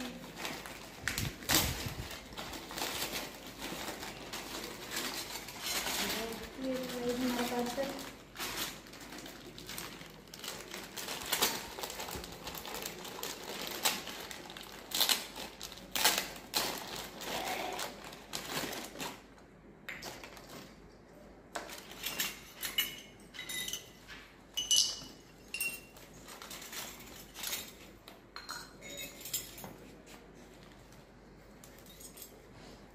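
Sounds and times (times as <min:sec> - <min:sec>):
plastic wrapping crinkling: 0:00.0 - 0:22.5, 0:25.8 - 0:28.3
small metal dishes clinking: 0:22.0 - 0:26.0, 0:27.3 - 0:29.8.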